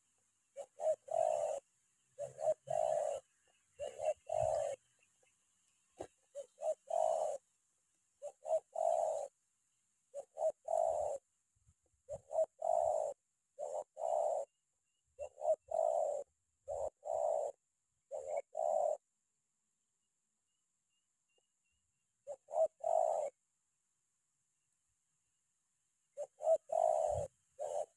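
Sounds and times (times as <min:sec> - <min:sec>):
dove cooing: 0:00.0 - 0:07.5, 0:08.2 - 0:09.4, 0:10.1 - 0:14.6, 0:15.2 - 0:19.2, 0:22.2 - 0:23.4, 0:26.1 - 0:27.9.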